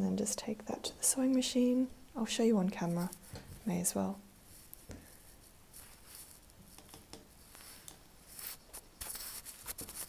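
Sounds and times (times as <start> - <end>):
fabric rustling: 4.4 - 6.8, 7.4 - 10.0.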